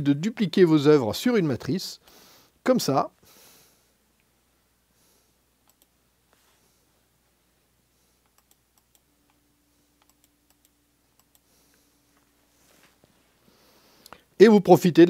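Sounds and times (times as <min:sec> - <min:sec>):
computer mouse clicks: 0:05.6 - 0:06.0, 0:08.2 - 0:09.4, 0:10.0 - 0:11.5.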